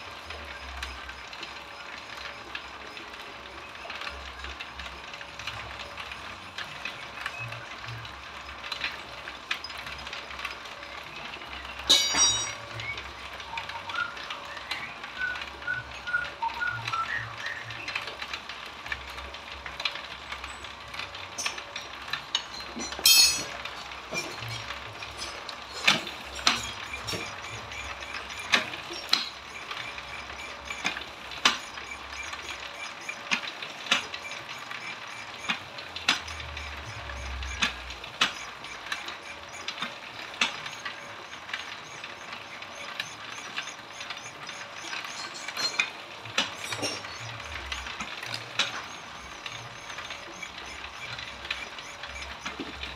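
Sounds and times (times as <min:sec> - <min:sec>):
machine whirring: 0:00.0 - 0:52.9
sharp clicks and knocks: 0:21.4 - 0:52.9.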